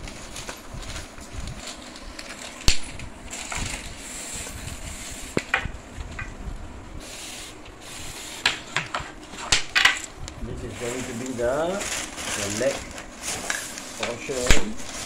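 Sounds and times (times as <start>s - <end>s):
paper rustling: 0.0s - 5.3s, 10.5s - 15.0s.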